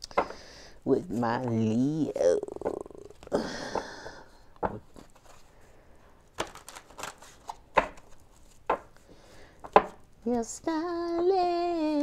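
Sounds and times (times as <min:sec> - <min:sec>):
cards snapping and tapping: 0:06.4 - 0:09.0.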